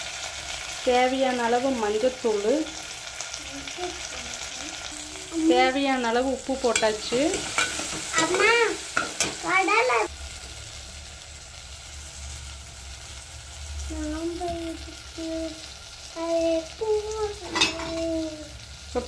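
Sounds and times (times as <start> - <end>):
food sizzling in hot oil: 0.0 - 19.0
spoon stirring and scraping pan: 6.4 - 9.4, 17.4 - 18.1.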